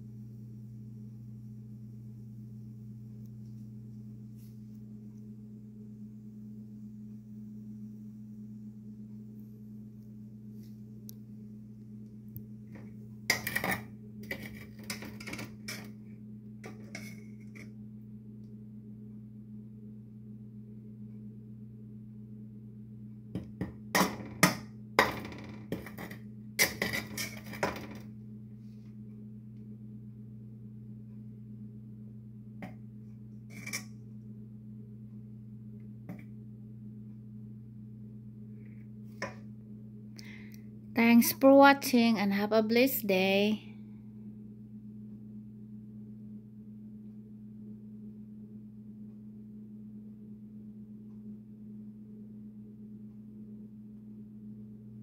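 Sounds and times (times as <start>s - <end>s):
steady low hum: 0.0s - 55.0s
metal spatula scraping a wok: 13.3s - 16.0s, 16.6s - 17.7s, 25.8s - 27.7s, 33.5s - 33.9s.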